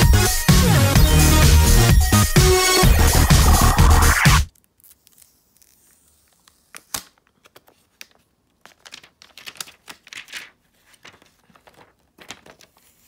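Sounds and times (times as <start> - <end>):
plastic film crinkling and clicking: 4.5 - 13.0.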